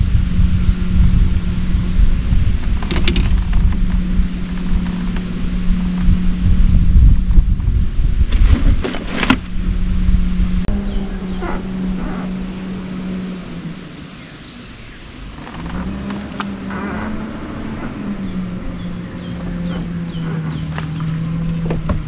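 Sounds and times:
electric motor humming: 0.0 - 22.0.

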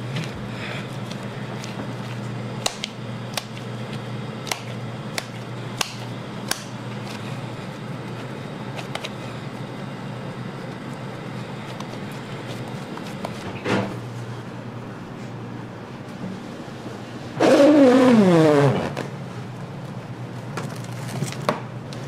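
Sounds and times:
kitchen machinery hum: 0.0 - 22.0
hands patting raw meat: 10.7 - 13.5.

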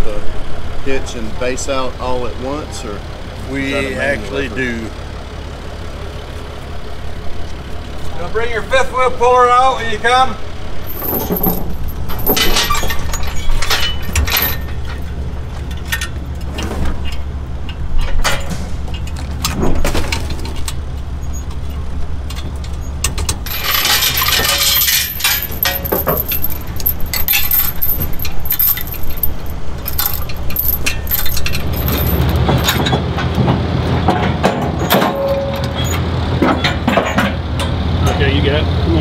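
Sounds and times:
low engine-like hum: 0.0 - 39.0
metal tools clinking and rattling: 10.8 - 33.0, 34.8 - 36.0.

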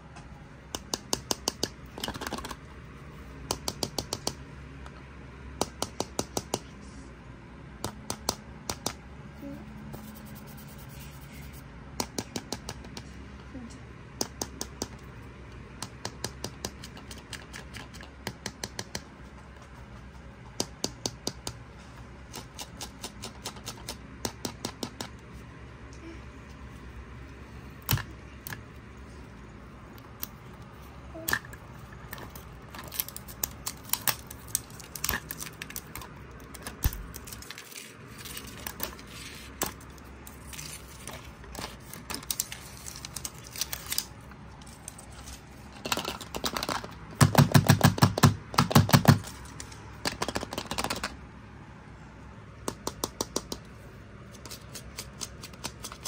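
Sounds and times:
fingernails tapping on plastic: 3.4 - 4.4, 46.3 - 49.3.

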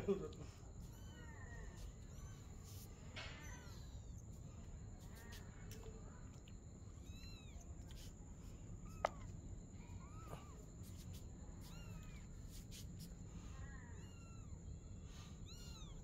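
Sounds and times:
kittens mewing: 0.3 - 6.0.

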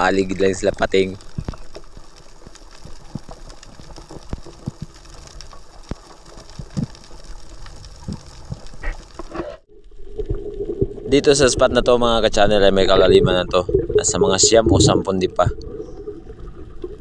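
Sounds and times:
underwater clicks and knocks: 1.2 - 9.5.

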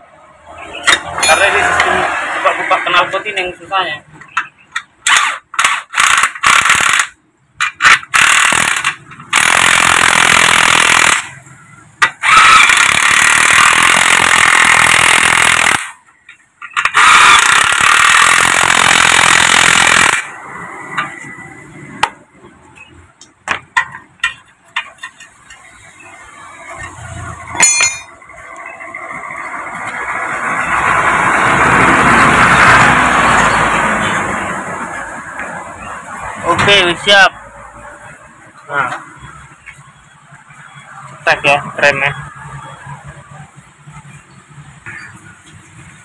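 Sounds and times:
impact wrench hammering: 5.1 - 11.3, 12.0 - 16.0, 16.6 - 20.2, 26.8 - 28.1
tools clicking and clinking: 23.2 - 25.9, 26.7 - 28.6.

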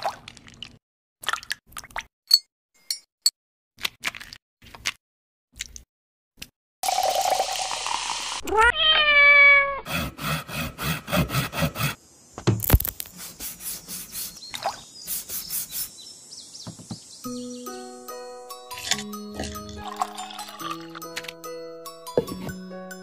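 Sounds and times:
cat meowing: 8.4 - 9.8.

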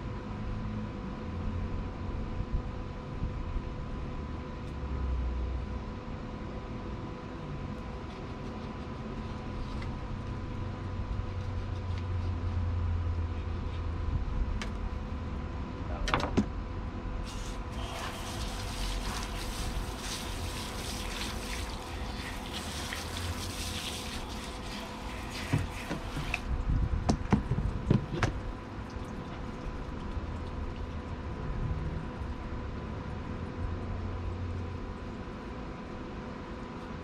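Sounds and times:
hose nozzle spraying water: 17.2 - 26.6.

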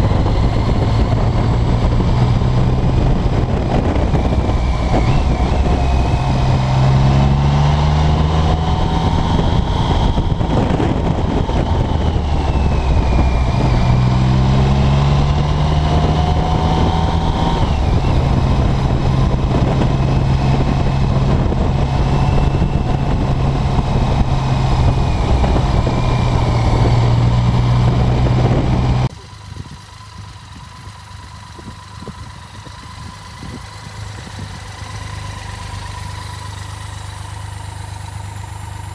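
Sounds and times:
motorcycle engine revving: 0.0 - 38.9
motorcycle engine idling: 28.4 - 38.9.

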